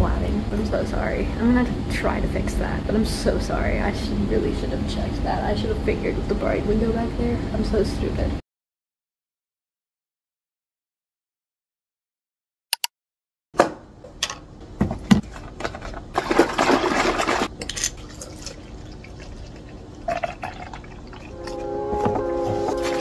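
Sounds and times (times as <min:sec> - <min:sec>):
carton being shaken: 0:15.7 - 0:17.5
milk pouring into plastic tumbler: 0:16.2 - 0:21.6.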